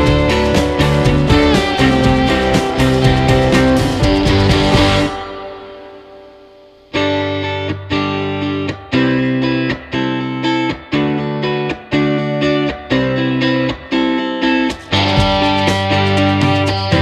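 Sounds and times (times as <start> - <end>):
rhythmic struck chords: 0.0 - 7.0, 14.5 - 17.0.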